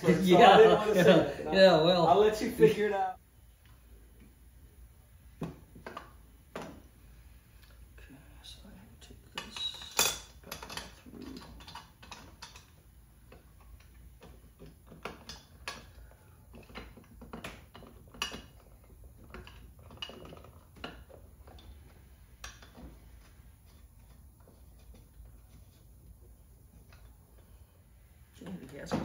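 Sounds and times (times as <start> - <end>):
metal parts clinking and knocking: 9.4 - 12.7.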